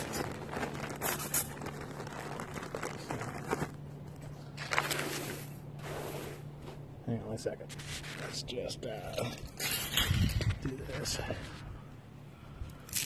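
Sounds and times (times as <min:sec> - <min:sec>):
plastic bag crinkling: 0:00.0 - 0:05.5.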